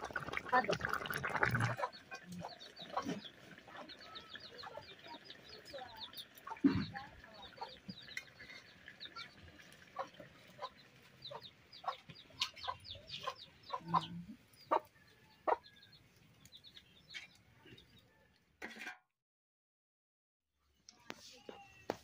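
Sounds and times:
small birds chirping: 0.4s - 18.3s
chickens clucking: 0.6s - 17.9s.

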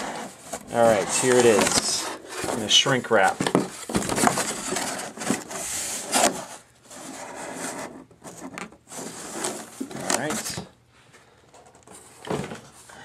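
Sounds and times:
cardboard and plastic rubbing: 0.0s - 10.7s.

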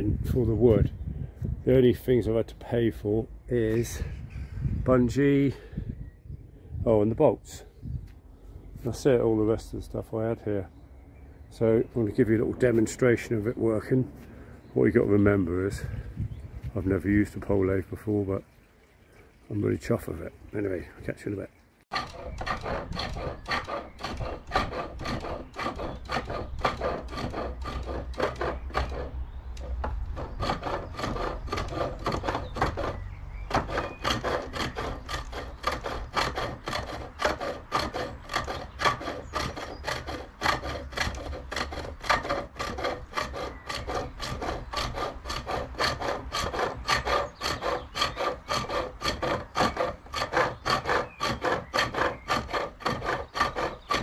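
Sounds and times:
lathe tool scraping wood: 21.9s - 54.0s.

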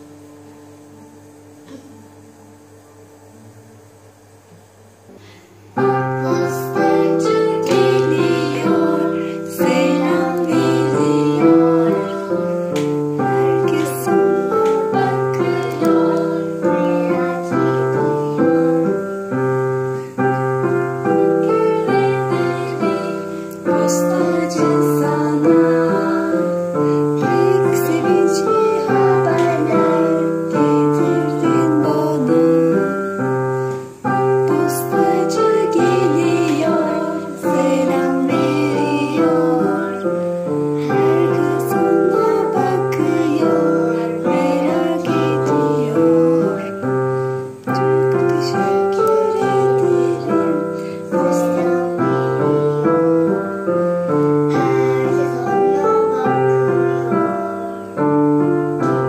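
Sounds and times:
digital piano duet: 0.0s - 59.0s.

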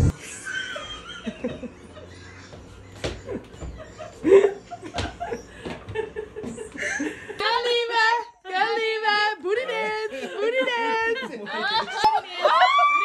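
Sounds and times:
stifled laughter: 0.1s - 7.4s.

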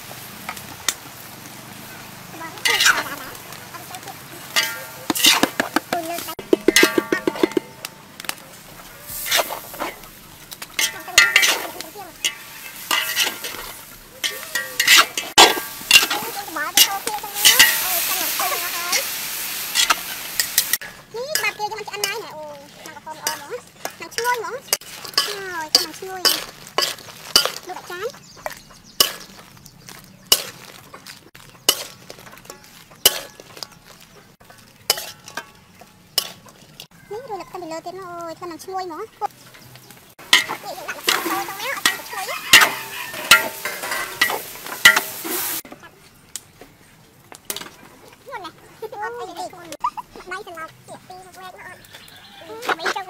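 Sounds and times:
sizzling: 0.0s - 53.0s
metal spatulas scraping wok: 2.0s - 7.9s, 8.5s - 36.9s, 39.5s - 45.7s.

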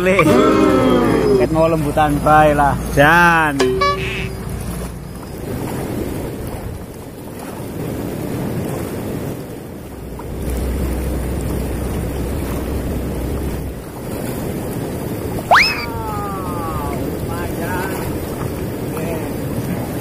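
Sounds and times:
river water rushing over stones: 0.0s - 20.0s
wind buffeting microphone: 4.3s - 20.0s.

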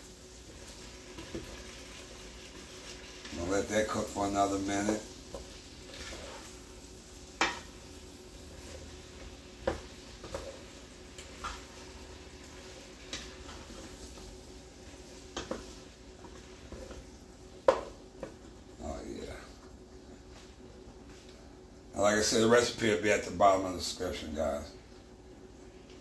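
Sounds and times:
vegetables sizzling in a pot: 0.0s - 19.5s.

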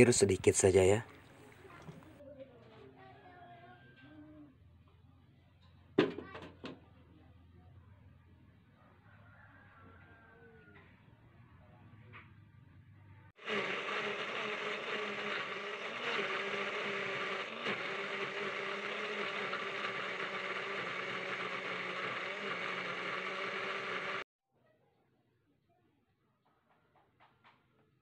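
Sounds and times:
electric blender running: 13.4s - 24.3s.

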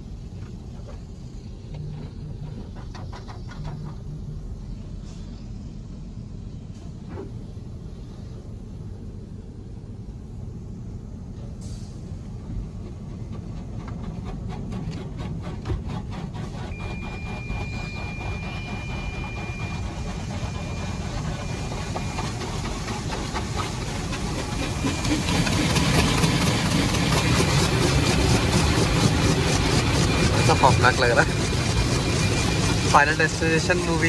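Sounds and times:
car wash mechanical rumble: 0.0s - 34.0s
water jets rinsing windscreen: 15.4s - 34.0s
thin steady whine: 16.4s - 34.0s.

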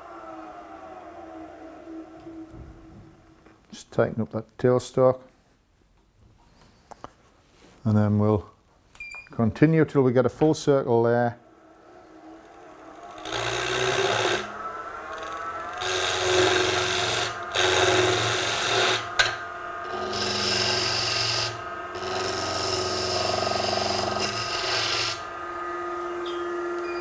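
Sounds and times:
lathe motor whine: 0.0s - 3.6s, 11.2s - 27.0s
gouge rasping on spinning wood: 13.2s - 19.0s, 20.0s - 25.2s.

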